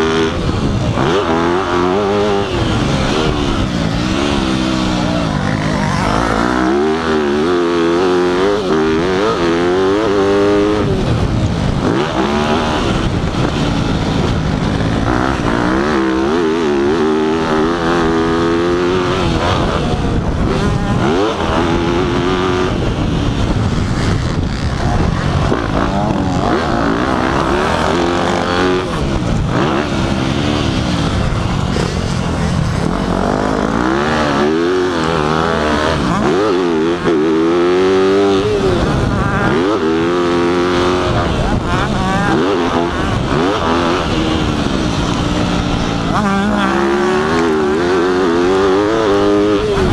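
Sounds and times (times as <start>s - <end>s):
constant rushing noise: 0.0s - 49.9s
dirt bike engine revving: 0.0s - 49.9s.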